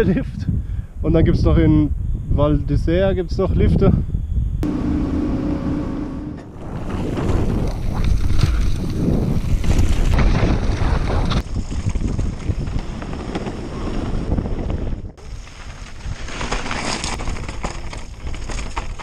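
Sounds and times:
wind buffeting microphone: 0.0 - 16.3
heavy low rumble: 4.5 - 11.4.

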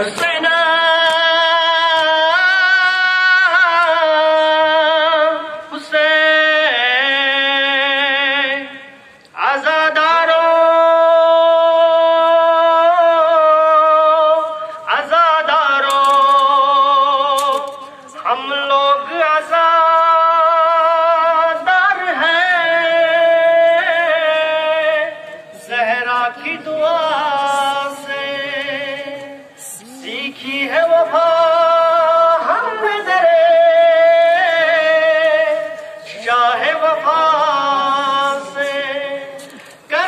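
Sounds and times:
person singing a lament: 25.6 - 40.0.

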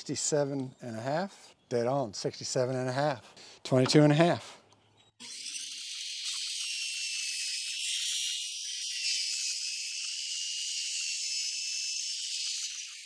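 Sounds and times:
table saw high-pitched hiss: 5.2 - 13.0.

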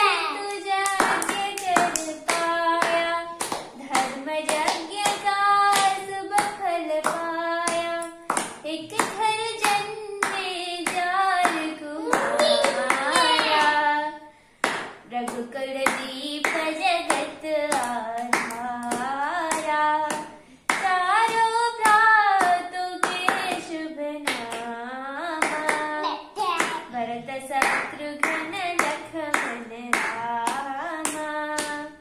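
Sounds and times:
person singing: 0.0 - 14.2
hands clapping: 0.2 - 13.8, 14.6 - 24.7, 25.4 - 25.9, 26.6 - 26.9, 27.6 - 31.9.

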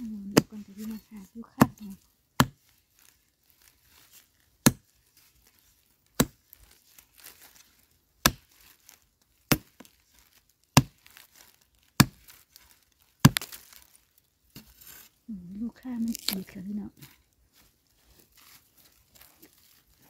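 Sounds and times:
digging tool striking stony soil: 0.0 - 2.7, 4.6 - 4.9, 6.1 - 6.6, 8.2 - 9.9, 10.7 - 11.2, 12.0 - 12.4, 13.2 - 15.1, 16.0 - 16.6
loose earth falling: 0.0 - 20.0.

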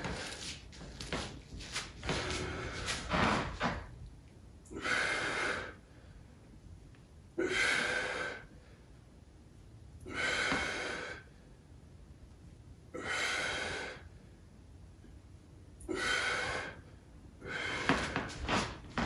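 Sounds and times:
person breathing out hard: 7.4 - 8.8, 10.0 - 11.4, 15.8 - 18.7.

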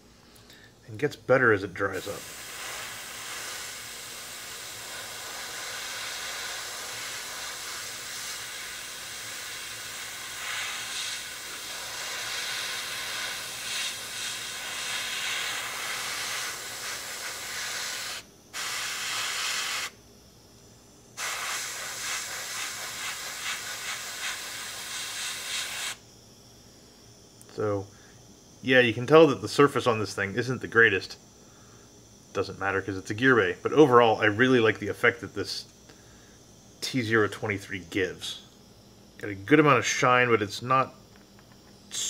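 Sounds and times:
airbrush hissing: 1.9 - 20.0, 21.2 - 26.0.

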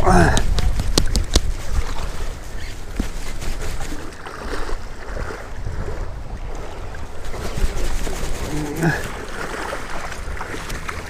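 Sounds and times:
wind rumbling on microphone: 0.0 - 11.0
river water rushing: 6.4 - 11.0.

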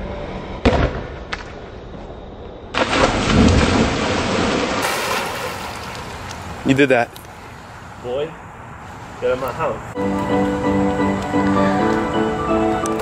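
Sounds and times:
person splashing into pool: 2.8 - 6.5
water churning and spattering: 2.8 - 7.0.

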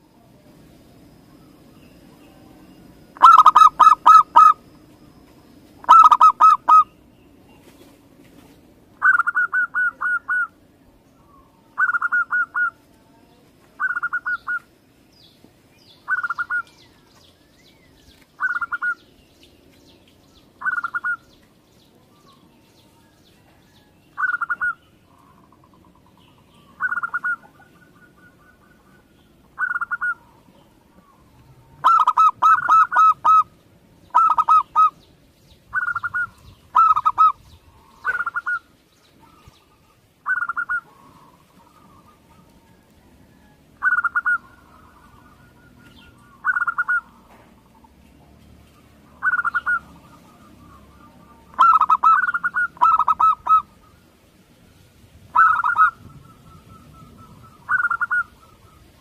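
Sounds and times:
dove cooing: 1.3 - 5.2, 5.8 - 6.9, 9.0 - 10.6, 11.2 - 12.8, 13.8 - 14.7, 16.0 - 16.7, 18.4 - 19.0, 20.6 - 21.3, 23.5 - 35.0, 35.7 - 48.0, 49.0 - 54.1, 55.3 - 59.0.

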